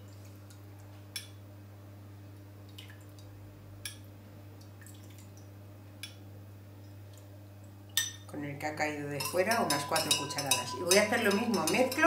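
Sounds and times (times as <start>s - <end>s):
liquid dripping: 2.6s - 6.2s
spoon clicking against glass: 9.2s - 12.0s.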